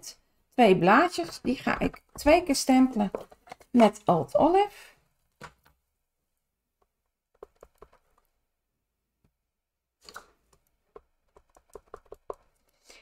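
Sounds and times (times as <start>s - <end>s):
faint clicks and taps: 1.2s - 3.8s, 6.8s - 8.3s, 10.1s - 13.0s.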